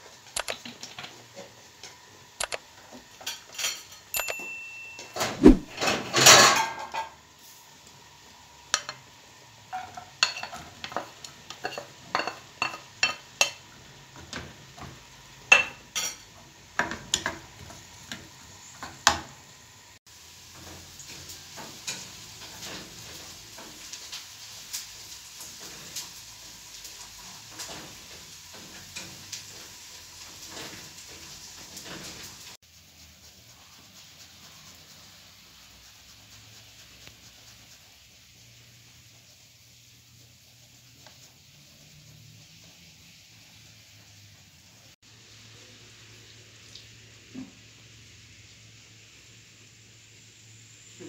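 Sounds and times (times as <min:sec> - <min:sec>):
onions sizzling in frying pan: 0:00.0 - 0:04.2, 0:05.5 - 0:51.0
spatula clicking and scraping pan: 0:00.0 - 0:04.4, 0:08.6 - 0:19.4, 0:20.5 - 0:44.2.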